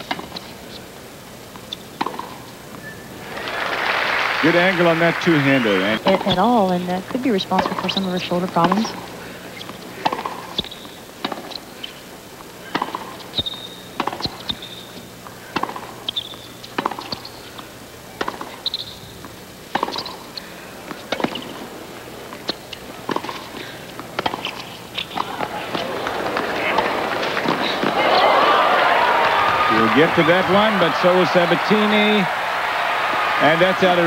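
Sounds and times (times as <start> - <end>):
shoes squeaking on court: 0.0 - 1.0, 1.6 - 3.2, 5.6 - 28.4
tennis ball struck by racquets: 2.0 - 2.4, 7.1 - 8.8, 9.6 - 11.6, 12.7 - 14.9, 15.5 - 17.3, 18.2 - 20.2, 20.9 - 28.1.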